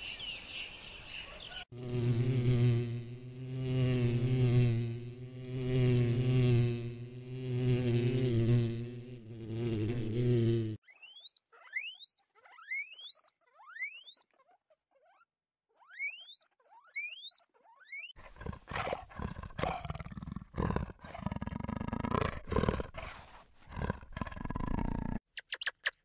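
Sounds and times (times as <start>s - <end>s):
guinea pig squealing: 10.8s - 18.2s
big cat growling: 18.2s - 25.2s.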